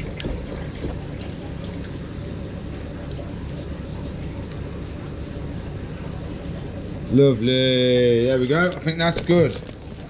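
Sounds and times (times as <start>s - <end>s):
water pouring into tank: 0.0s - 2.1s.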